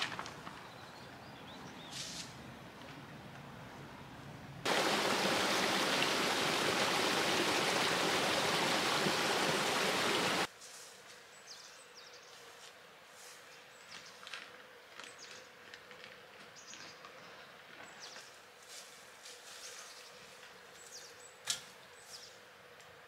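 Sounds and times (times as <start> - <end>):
stream running over stones: 4.7 - 10.5.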